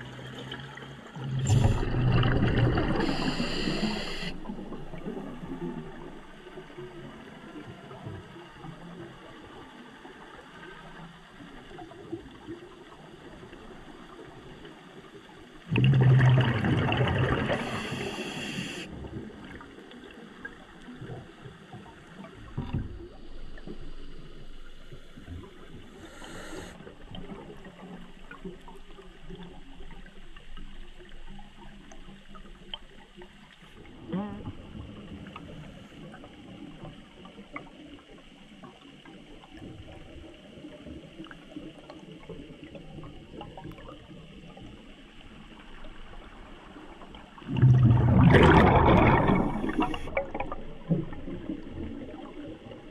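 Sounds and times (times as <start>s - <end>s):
underwater hiss: 1.2s - 5.6s, 15.9s - 19.0s, 23.0s - 27.0s, 48.2s - 50.4s
diver's exhaled bubbles rushing: 1.2s - 6.0s, 15.7s - 18.2s, 47.4s - 52.2s.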